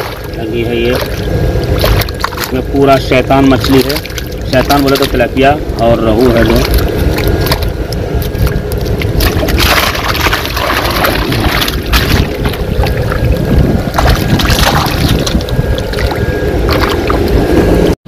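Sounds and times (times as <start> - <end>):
constant low rumble: 0.0 - 18.0
water splashing and sloshing: 0.0 - 18.0.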